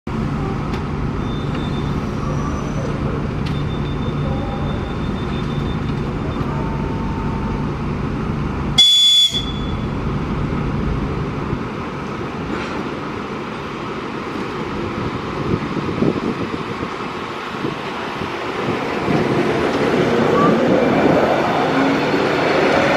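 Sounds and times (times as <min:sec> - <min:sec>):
high-pitched train whistle: 0:08.8 - 0:09.8.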